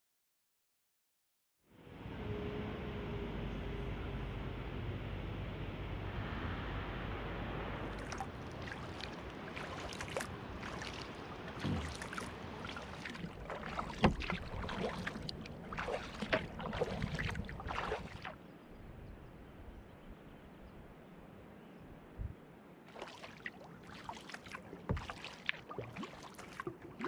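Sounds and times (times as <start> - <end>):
paddle splashing and dripping: 7.8 - 18.4, 22.9 - 27.0.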